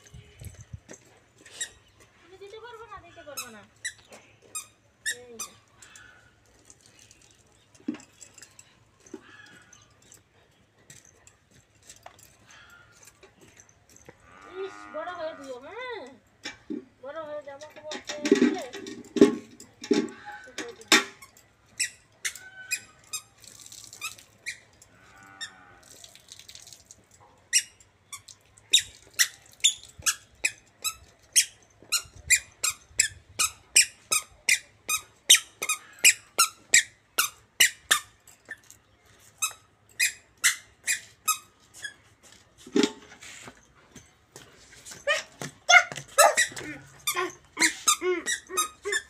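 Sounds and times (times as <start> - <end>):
squeaky shoes with each step: 0.2 - 5.9, 20.1 - 23.4, 27.5 - 49.0.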